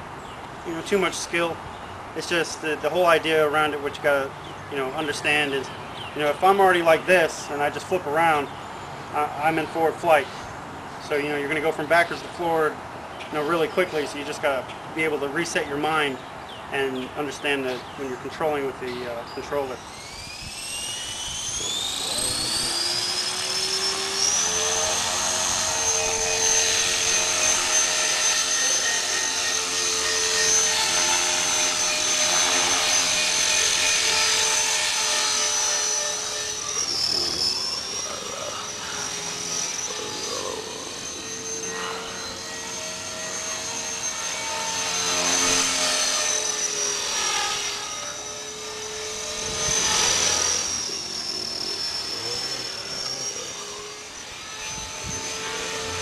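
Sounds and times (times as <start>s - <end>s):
rc helicopter rotor whine: 0.0s - 56.0s.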